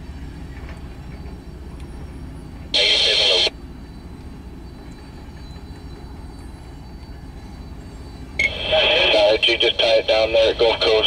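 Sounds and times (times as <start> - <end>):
freight train cars rumbling: 0.0 - 11.0
radio scanner static: 2.8 - 3.5, 8.4 - 11.0.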